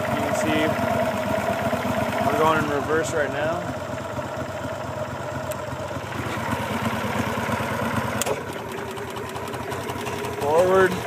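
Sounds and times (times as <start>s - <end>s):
boat motor running: 0.0s - 11.0s.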